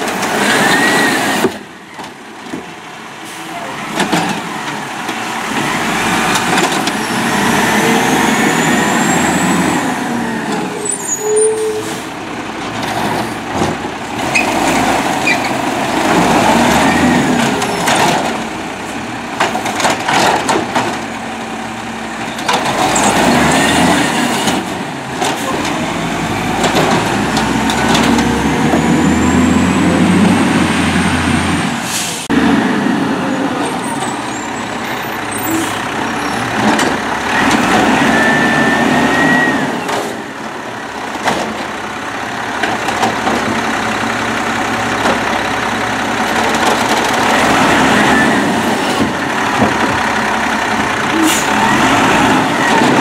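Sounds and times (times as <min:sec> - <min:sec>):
truck engine revving: 0:03.2 - 0:53.0
cart clanking: 0:22.1 - 0:30.5
air brake hisses: 0:31.8 - 0:32.3.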